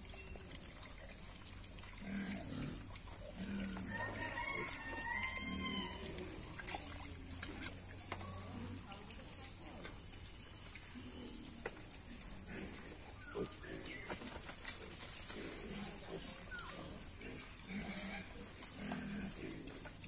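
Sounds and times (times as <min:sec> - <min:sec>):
rustling through wet leaves: 0:00.0 - 0:09.6, 0:14.0 - 0:20.0
piglets grunting: 0:02.0 - 0:06.6, 0:15.4 - 0:19.8.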